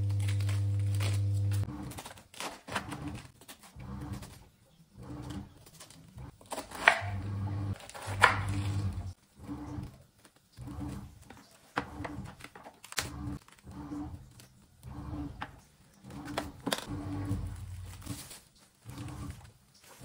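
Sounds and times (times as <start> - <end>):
plastic cling wrap crinkling: 0.0 - 4.3, 16.4 - 20.0.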